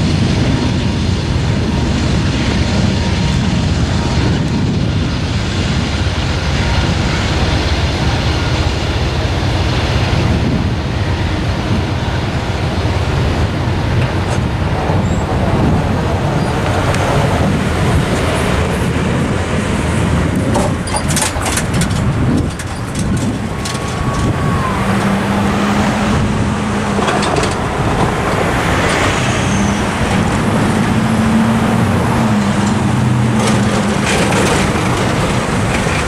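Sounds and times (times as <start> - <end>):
low engine hum: 0.0 - 36.0
cars driving over crossing: 11.4 - 36.0
tyres knocking on rails: 20.3 - 25.2.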